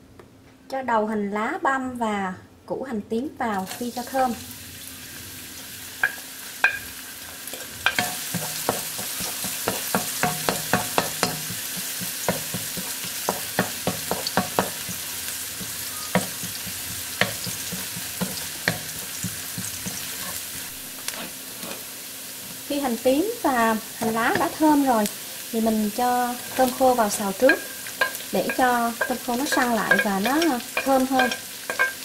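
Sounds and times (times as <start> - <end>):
shallots sizzling in hot oil: 3.5 - 32.0
spatula tapping against pan: 6.0 - 6.9, 7.8 - 20.1, 27.4 - 32.0.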